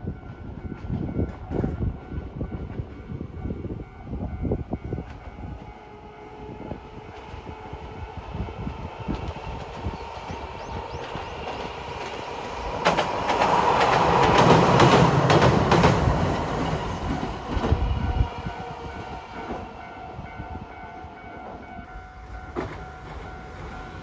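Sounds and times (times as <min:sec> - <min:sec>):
tram wheels clacking over rail joints: 0:08.6 - 0:19.8, 0:22.3 - 0:24.0.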